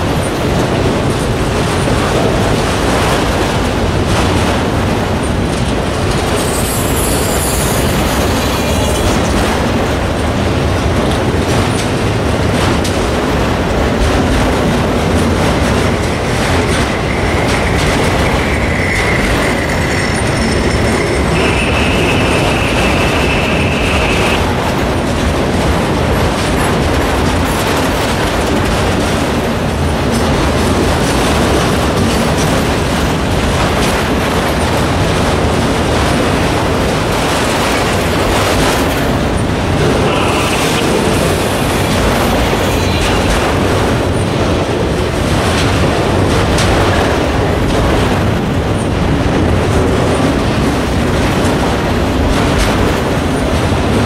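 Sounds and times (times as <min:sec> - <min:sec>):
freight train wheels rumbling: 0:00.0 - 0:54.0
high wheel squeal: 0:06.1 - 0:09.8, 0:15.7 - 0:24.7, 0:39.4 - 0:44.2.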